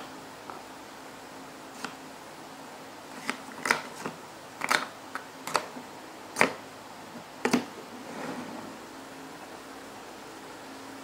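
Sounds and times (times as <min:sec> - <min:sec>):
soft scrape on table: 0:08.0 - 0:08.8.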